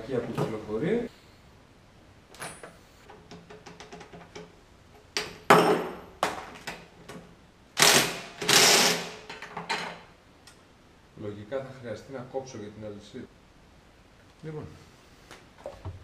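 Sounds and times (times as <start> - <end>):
small metal knocks: 3.1 - 4.6.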